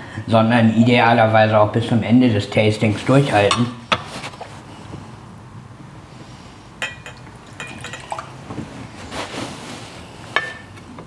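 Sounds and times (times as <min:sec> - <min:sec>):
glassware clinking: 0:06.8 - 0:08.3
whisky pouring into glass: 0:07.2 - 0:08.4.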